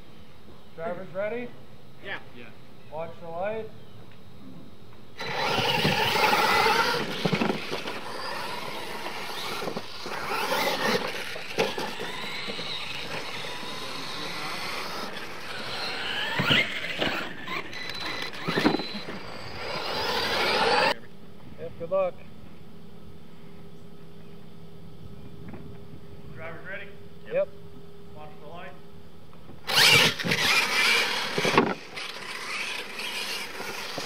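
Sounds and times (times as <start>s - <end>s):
electric toy trucks whining: 5.2s - 21.0s, 29.6s - 34.0s.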